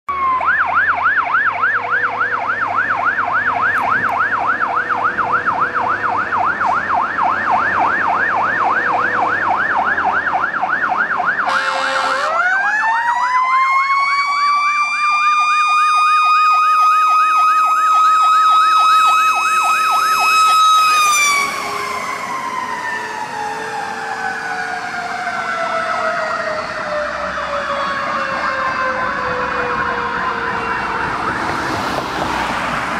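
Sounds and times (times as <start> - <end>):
fire engine siren: 0.1 - 32.9
short horn blast: 11.5 - 12.3.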